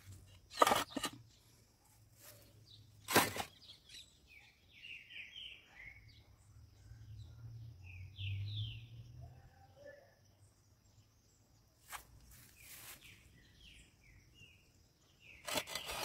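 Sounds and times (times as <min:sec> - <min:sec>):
small birds chirping: 0:00.0 - 0:09.1, 0:09.8 - 0:16.0.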